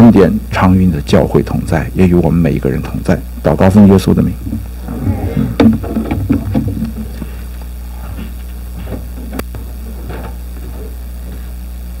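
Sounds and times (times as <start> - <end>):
low electrical hum: 0.0 - 12.0
faint murmurs: 3.8 - 11.6.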